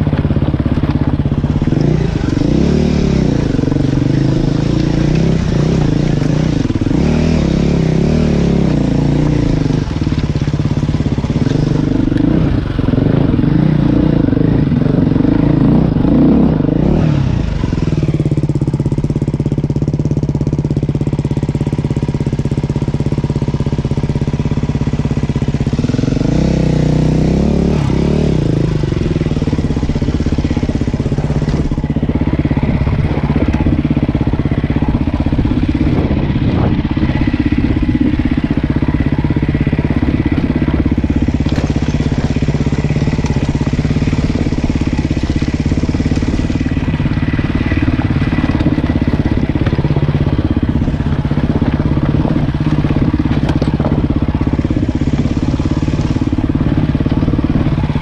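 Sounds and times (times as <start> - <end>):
off-road vehicle engine revving: 0.0 - 58.0.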